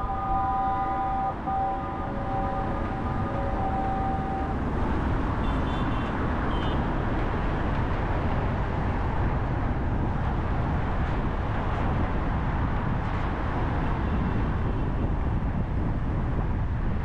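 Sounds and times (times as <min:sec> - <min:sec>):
held multi-pitch tone: 0:00.0 - 0:04.9
car driving in traffic: 0:00.0 - 0:17.0.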